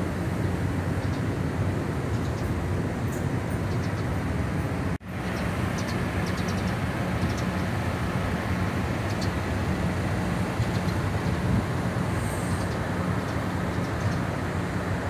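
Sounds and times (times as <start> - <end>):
wind buffeting microphone: 5.6 - 15.0.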